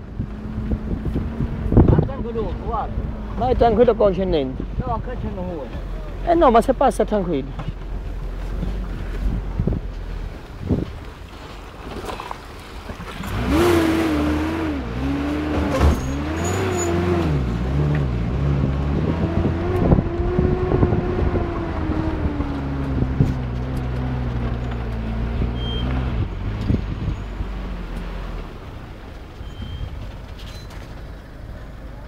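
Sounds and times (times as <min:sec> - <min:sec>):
vehicle knocks and rattles: 0:07.5 - 0:11.1, 0:15.4 - 0:18.3, 0:28.5 - 0:32.0
off-road vehicle engine revving: 0:13.0 - 0:30.7.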